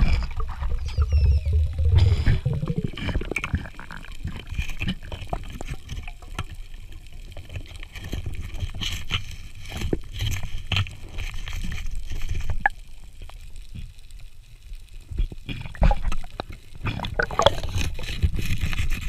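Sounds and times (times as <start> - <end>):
muffled underwater gurgling: 0.0 - 7.8, 15.0 - 19.0.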